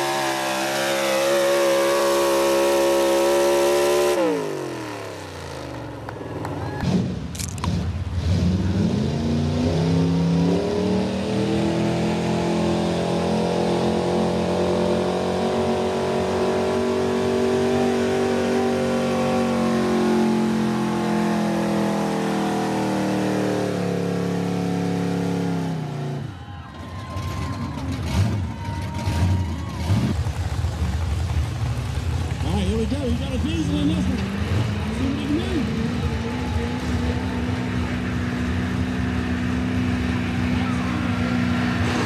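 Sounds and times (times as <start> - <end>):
engine revving at full throttle: 0.0 - 6.2, 6.8 - 26.3, 32.9 - 42.0.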